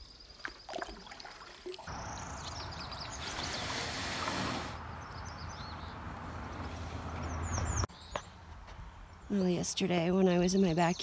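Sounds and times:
songbirds chirping: 1.6s - 11.0s.

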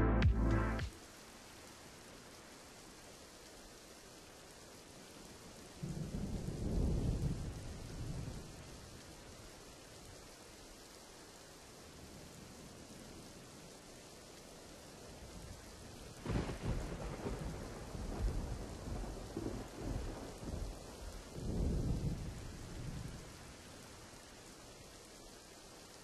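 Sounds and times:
steady rain hiss: 0.0s - 26.0s
rolling thunder: 5.8s - 9.0s, 16.2s - 23.4s.

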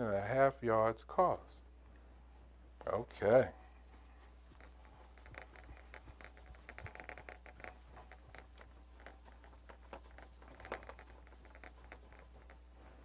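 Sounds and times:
eraser wiping a whiteboard: 4.2s - 13.0s.

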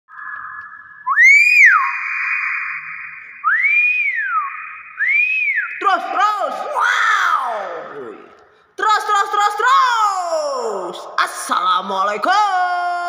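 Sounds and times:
myna whistling: 0.1s - 6.4s.

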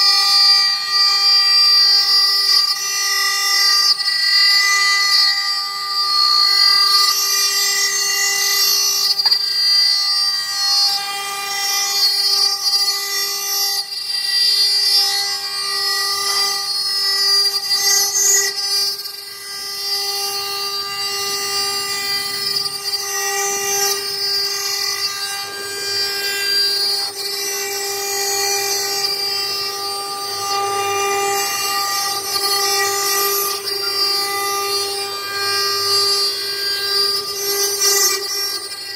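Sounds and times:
bit cutting stone hiss: 0.0s - 38.9s
router spindle whining: 0.0s - 38.9s.

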